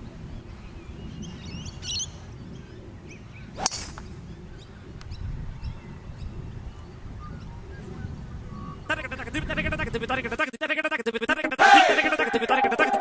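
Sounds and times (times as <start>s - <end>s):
birds chirping: 0.0s - 9.3s
wind on microphone: 0.0s - 10.4s
golf club striking ball: 3.6s - 4.1s.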